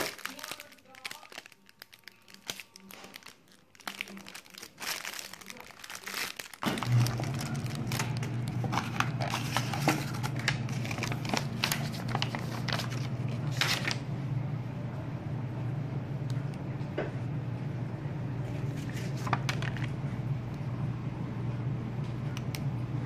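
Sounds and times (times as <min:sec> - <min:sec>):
plastic wrapping crinkling: 0:00.0 - 0:14.1, 0:18.4 - 0:20.0
low hum: 0:06.8 - 0:23.0.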